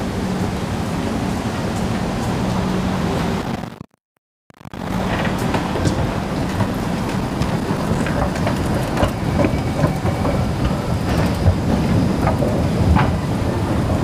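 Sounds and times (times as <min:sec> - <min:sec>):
escalator low rumble: 0:04.5 - 0:14.0.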